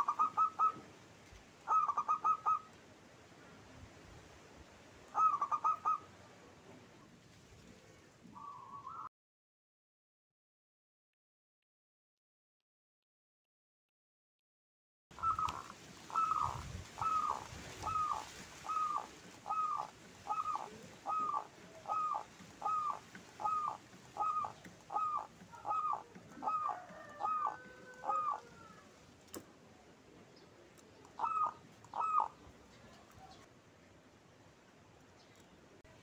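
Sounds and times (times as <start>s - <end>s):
dove cooing: 0.0s - 0.8s, 1.7s - 2.8s, 5.2s - 6.1s, 8.4s - 9.1s, 15.2s - 29.0s, 31.1s - 33.4s.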